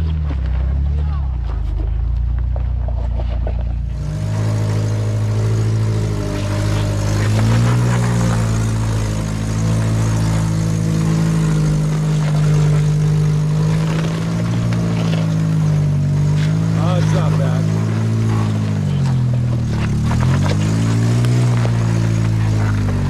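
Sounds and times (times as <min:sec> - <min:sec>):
off-road vehicle engine running: 0:00.0 - 0:23.0.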